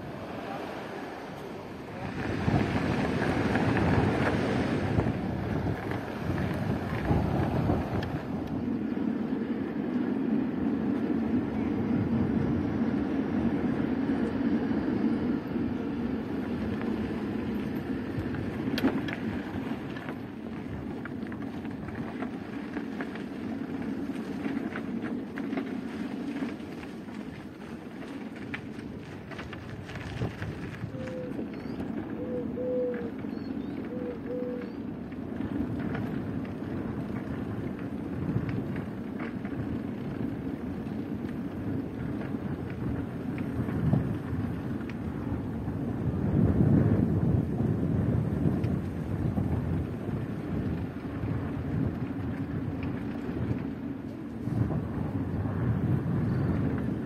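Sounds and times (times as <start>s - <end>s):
wind blowing on microphone: 0.0s - 23.0s, 28.2s - 57.0s
steady low rumble: 0.0s - 57.0s.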